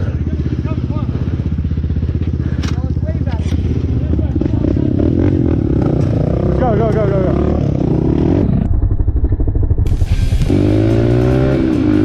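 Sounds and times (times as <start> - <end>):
dirt bike engine revving: 3.5 - 12.0.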